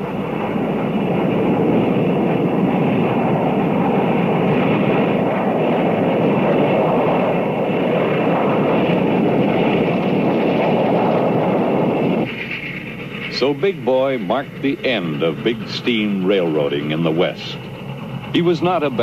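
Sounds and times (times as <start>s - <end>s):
steam locomotive rumbling: 0.0s - 19.0s
freight cars rolling: 8.6s - 19.0s.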